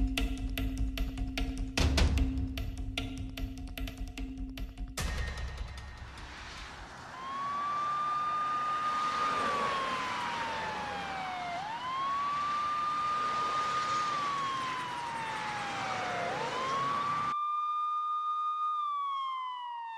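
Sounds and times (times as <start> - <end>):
road traffic hiss: 5.8 - 17.3
emergency siren wailing: 6.6 - 19.9.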